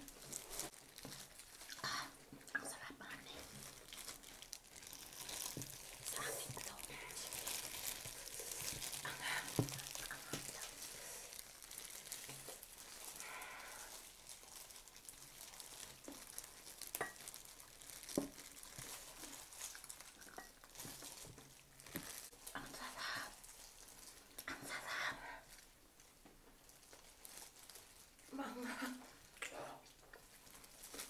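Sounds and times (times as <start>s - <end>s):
chewing: 0.0s - 2.6s, 3.3s - 22.6s
plastic gloves crinkling: 0.0s - 31.0s.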